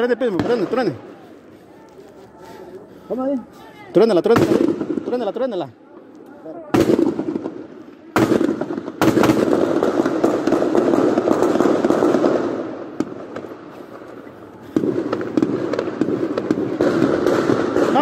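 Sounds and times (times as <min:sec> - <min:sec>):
rapid gunfire: 0:14.7 - 0:18.0.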